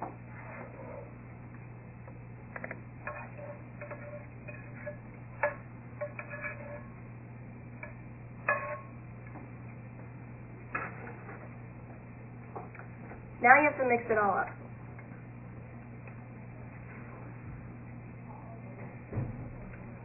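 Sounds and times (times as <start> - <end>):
steady low hum: 0.0 - 20.0
utensil scraping and tapping a pan: 2.6 - 7.1, 7.8 - 9.4.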